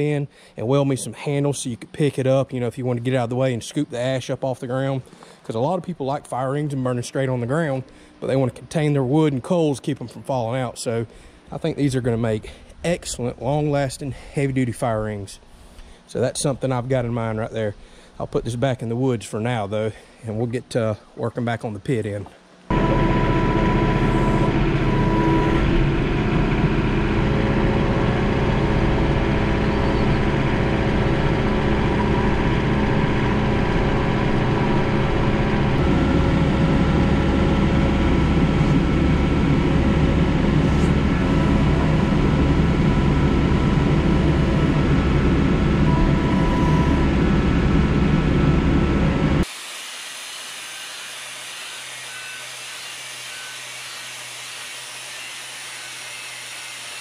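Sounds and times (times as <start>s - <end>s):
quiet steady hum: 0.0s - 22.7s
tractor diesel engine running: 22.7s - 49.4s.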